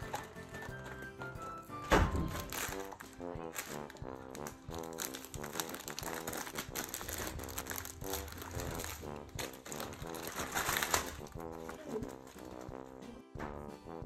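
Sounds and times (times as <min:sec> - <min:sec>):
plastic wrapping crinkling: 0:00.0 - 0:01.4, 0:02.0 - 0:13.0
background music: 0:00.0 - 0:14.0
dog chewing and tearing: 0:02.4 - 0:12.7.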